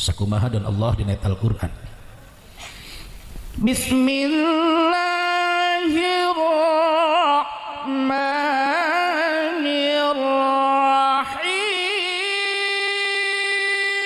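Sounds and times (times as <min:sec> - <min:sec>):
man chanting into microphone: 0:03.6 - 0:14.0.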